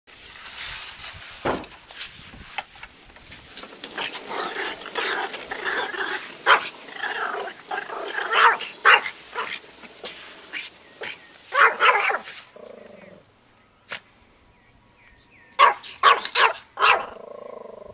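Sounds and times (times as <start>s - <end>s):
small dog yapping: 4.0s - 9.6s, 10.5s - 12.4s, 15.6s - 17.2s.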